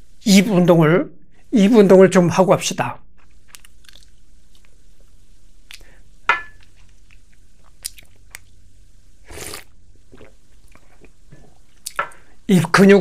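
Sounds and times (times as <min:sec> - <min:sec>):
lip and tongue clicks: 0:03.5 - 0:04.8, 0:05.7 - 0:05.9, 0:07.1 - 0:08.5
man sipping from a cup: 0:09.3 - 0:12.3.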